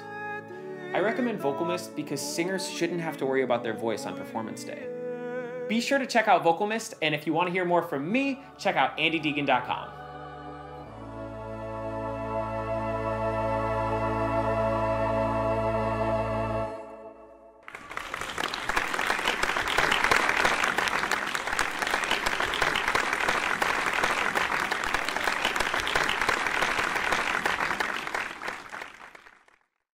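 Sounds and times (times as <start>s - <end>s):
choir singing held chord: 0.0s - 5.7s, 7.9s - 17.6s
organ: 7.6s - 28.9s
audience applauding: 17.7s - 29.7s.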